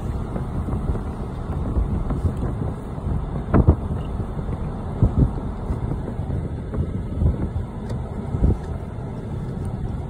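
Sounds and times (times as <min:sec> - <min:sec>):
wind noise on microphone: 0:00.0 - 0:10.0.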